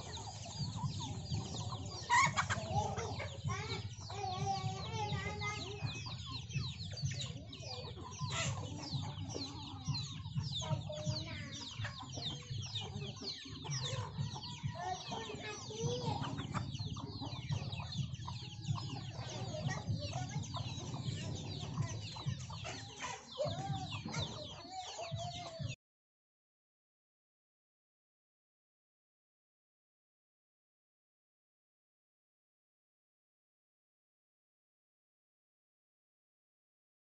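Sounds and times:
chicks peeping: 0:00.0 - 0:25.8
hens clucking: 0:00.0 - 0:25.8.

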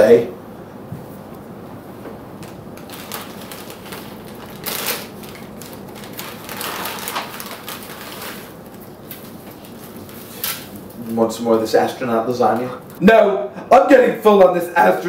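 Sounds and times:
foil pouch tearing and crinkling: 0:02.4 - 0:11.0.

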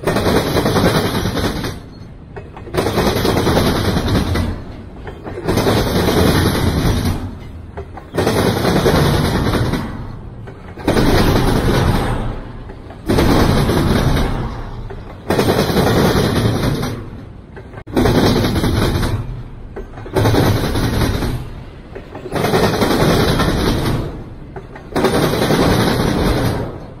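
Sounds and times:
rail cars clattering past: 0:00.0 - 0:27.0.

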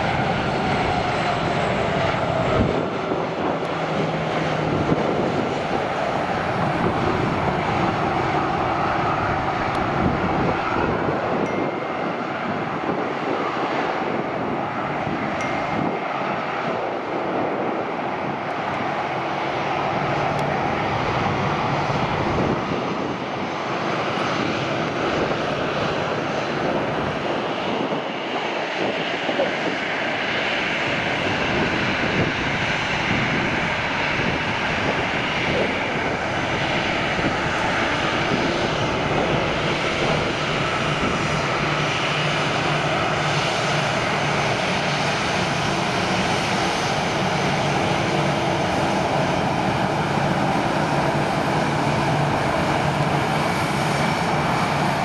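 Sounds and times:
jet engines idling: 0:00.0 - 0:55.0.

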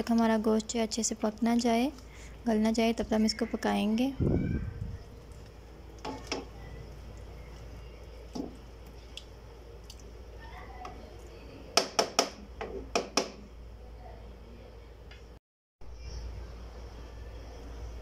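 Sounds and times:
spatula stirring squelching food: 0:05.0 - 0:11.3.

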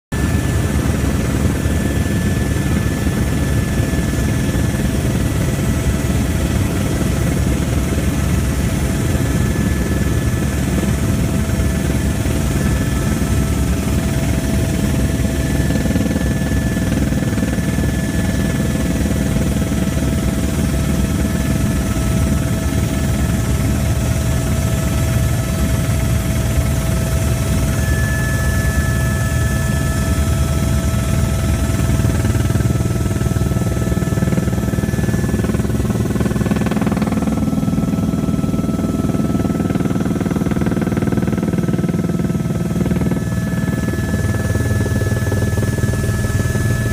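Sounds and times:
helicopter rotor and engine: 0:00.1 - 0:46.9
high whine: 0:24.3 - 0:39.8.

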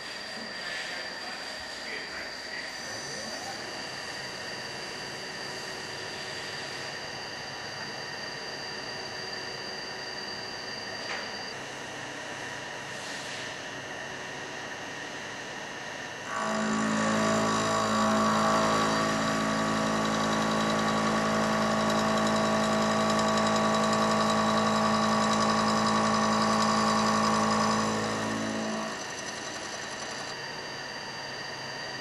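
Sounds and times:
milling machine cutter humming: 0:16.3 - 0:30.4.

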